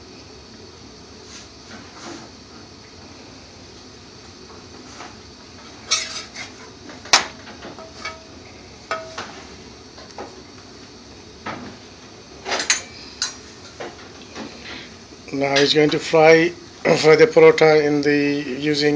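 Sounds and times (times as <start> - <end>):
metal spatula clattering on griddle: 5.9 - 6.5, 7.8 - 8.3
steady low hiss: 14.8 - 18.9.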